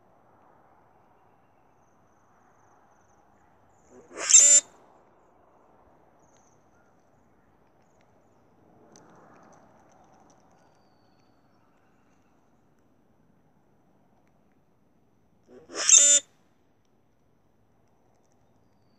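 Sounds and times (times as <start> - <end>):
grackle squeaky screech song: 3.9 - 4.7, 15.5 - 16.2.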